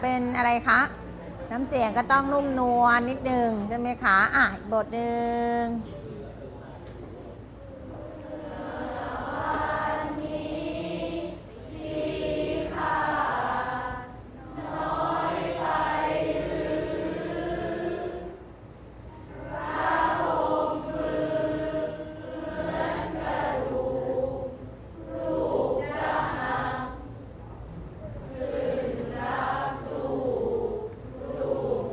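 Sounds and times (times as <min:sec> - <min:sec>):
students chanting a poem in unison: 0:07.7 - 0:18.5, 0:19.3 - 0:27.2, 0:28.0 - 0:31.9.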